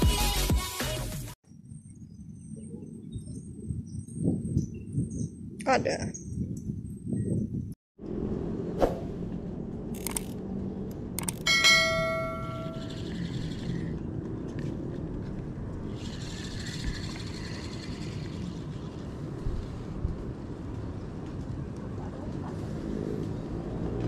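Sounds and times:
ringing metallic strike: 0:11.5 - 0:13.0.

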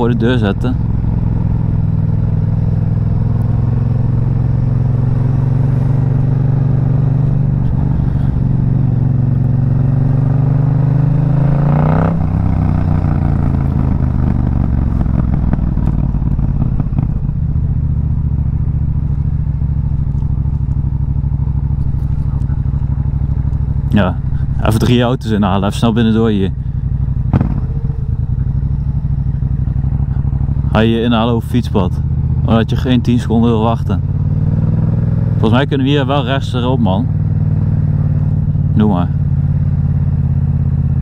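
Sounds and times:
motorcycle engine revving: 0:00.0 - 0:41.0.

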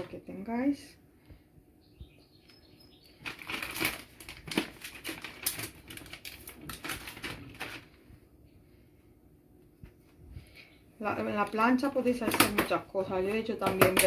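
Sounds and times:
plastic wrapping crinkling: 0:03.1 - 0:08.0.

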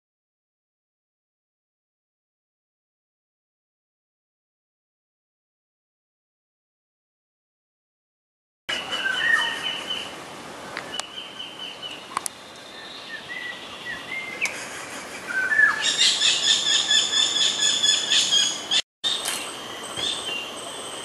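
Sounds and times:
wild birds calling: 0:08.7 - 0:21.0.

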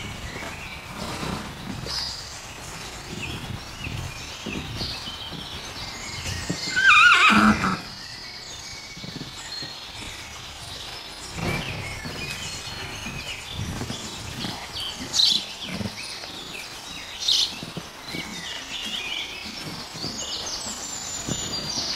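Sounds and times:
hooves on sandy ground: 0:00.0 - 0:21.9
pony whinnying: 0:06.6 - 0:08.0.

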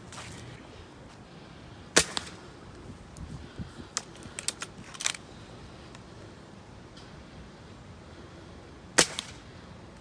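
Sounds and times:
air rifle mechanical clicks: 0:03.9 - 0:05.3.

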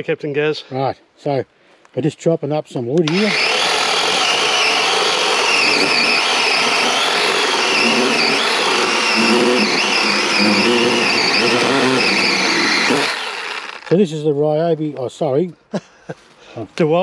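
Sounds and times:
electric chainsaw cutting log: 0:03.0 - 0:14.0.

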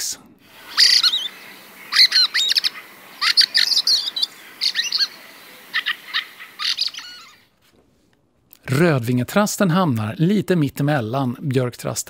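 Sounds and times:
bird chattering and croaking: 0:00.5 - 0:07.4.

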